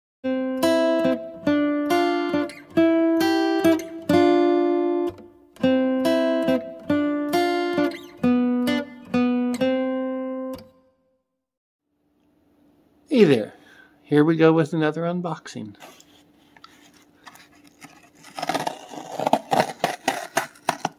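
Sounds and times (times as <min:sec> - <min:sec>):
plucked acoustic guitar melody: 0:00.3 - 0:10.8.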